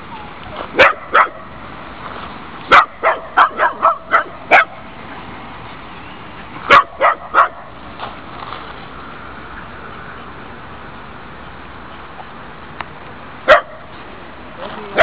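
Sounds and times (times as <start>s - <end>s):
small dog barking: 0.7s - 1.5s, 2.7s - 4.8s, 6.7s - 7.7s, 13.5s - 13.9s.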